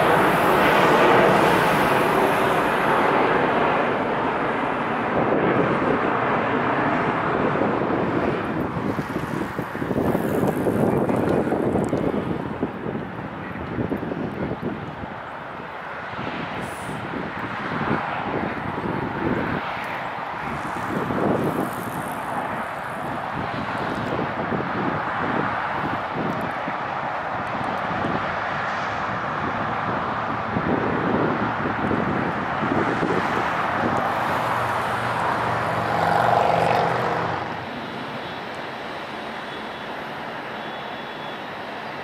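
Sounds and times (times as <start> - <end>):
jet engine rumbling: 0.0 - 15.8
jet engines roaring: 0.0 - 42.0.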